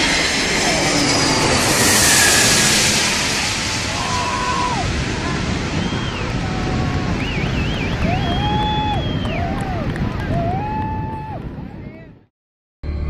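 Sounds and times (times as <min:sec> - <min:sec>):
jet aircraft engines roaring overhead: 0:00.0 - 0:12.1
wind on microphone: 0:01.6 - 0:12.3
onlookers shouting and calling: 0:03.9 - 0:11.5.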